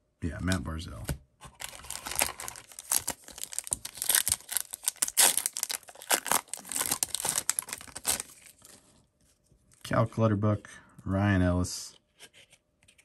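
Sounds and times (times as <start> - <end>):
card pack wrapper tearing: 1.6 - 8.7.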